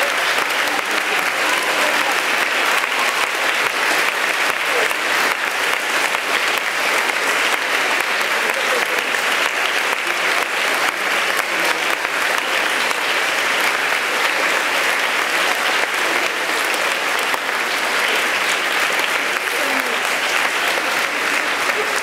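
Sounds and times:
crowd applauding: 0.0 - 22.0.

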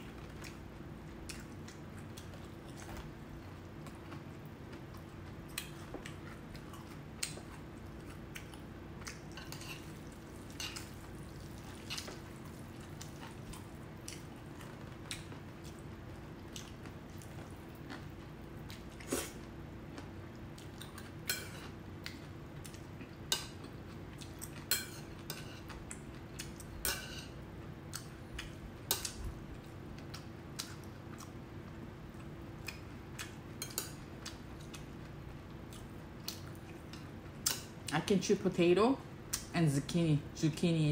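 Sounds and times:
steady low hum: 0.0 - 40.9
wet chewing and slurping: 3.8 - 15.8.

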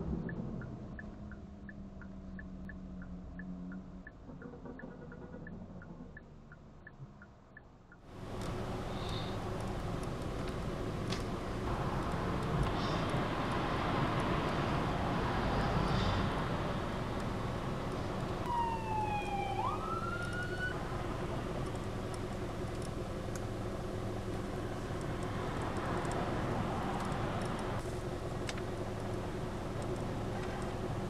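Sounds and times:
car cabin hum and hiss: 8.1 - 15.4, 16.3 - 31.0.

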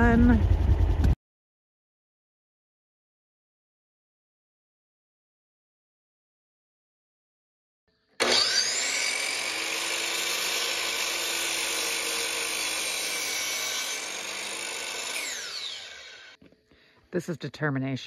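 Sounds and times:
miter saw cutting wood: 8.2 - 16.4.

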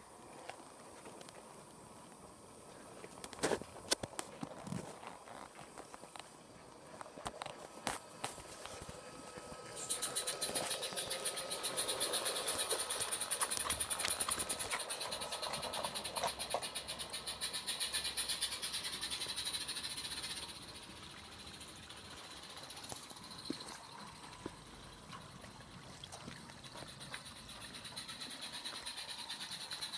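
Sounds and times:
model train clattering on track: 7.7 - 20.8.

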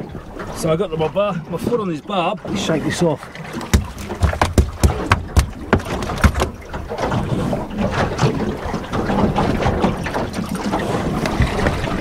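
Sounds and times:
water around boat: 0.0 - 12.0
wind: 0.0 - 12.0
sharp knocks: 3.6 - 6.7.

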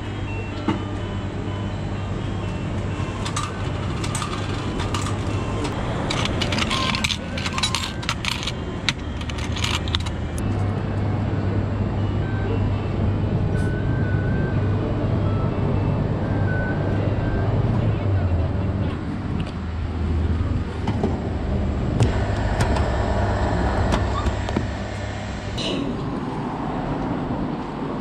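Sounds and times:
low steady hum: 0.0 - 26.6
coins clinking: 2.8 - 10.4.

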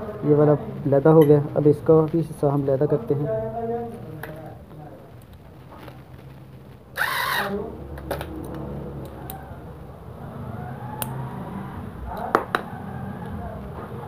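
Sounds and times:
electric screwdriver whirring: 7.0 - 7.6.

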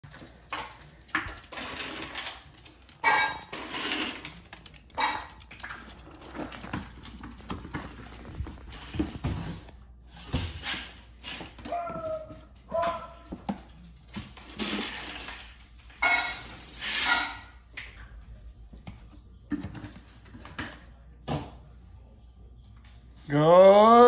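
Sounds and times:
dog claws clicking on wooden floor: 0.1 - 9.8
person's footsteps: 4.3 - 9.8.

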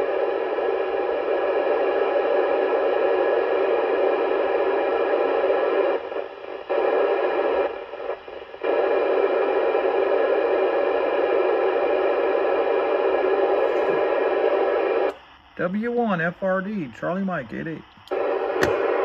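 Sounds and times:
radio receiver static hiss: 0.0 - 19.0.

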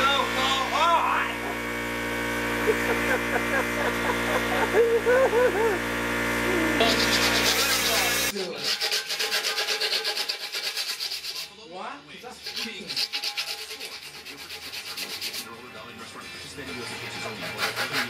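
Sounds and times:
sandpaper rubbing on metal: 6.5 - 11.6, 12.3 - 15.6, 16.9 - 18.0.

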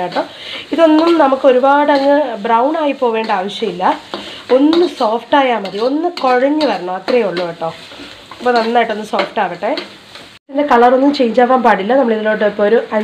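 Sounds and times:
metal spatula scraping a pan: 0.0 - 10.4
onions sizzling in hot oil: 0.0 - 13.0.

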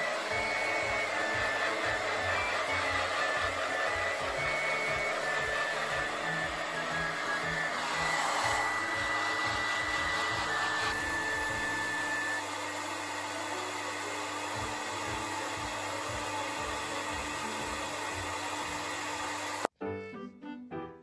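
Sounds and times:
thin high whine: 0.0 - 12.6
hair dryer blowing: 0.0 - 19.7.

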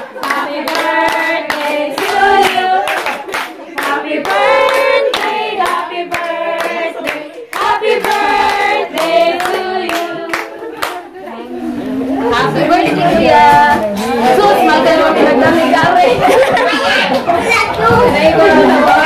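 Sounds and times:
people clapping in time: 0.0 - 11.0
group of people singing: 0.0 - 16.7, 17.9 - 19.0.

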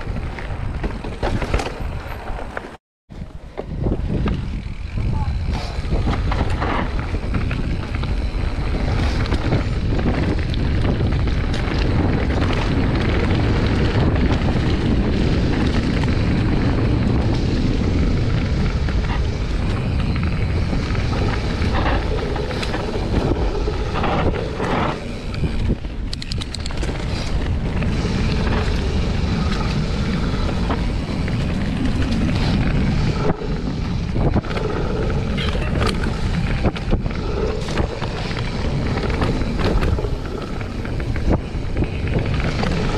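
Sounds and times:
bike knocks and rattles: 0.0 - 2.8, 3.5 - 33.0
wind on microphone: 3.1 - 42.9
tyres rolling over dry leaves: 26.7 - 42.9.

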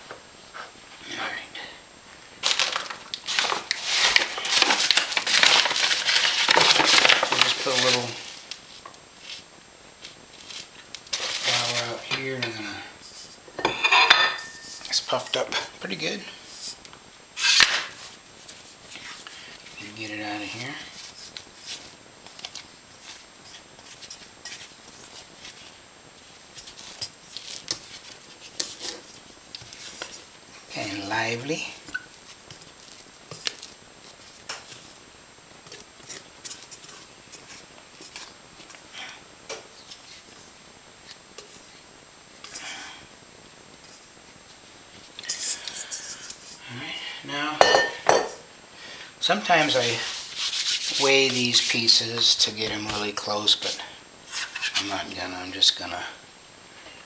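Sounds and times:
flour shaken out: 2.4 - 8.4, 49.6 - 52.5
paper bags rustling and crinkling: 2.4 - 13.4, 17.4 - 39.1, 49.2 - 55.9.

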